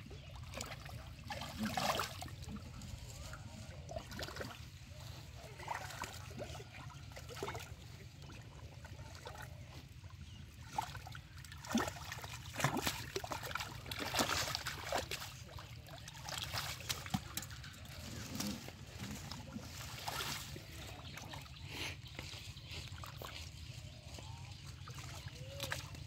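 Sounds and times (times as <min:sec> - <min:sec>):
hands splashing in muddy water: 0:00.2 - 0:02.9, 0:10.6 - 0:26.0.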